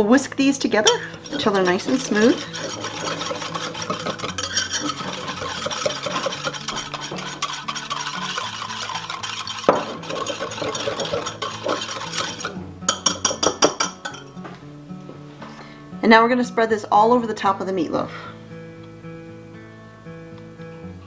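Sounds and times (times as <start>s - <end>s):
whisk beating thick mixture: 0.9s - 13.9s.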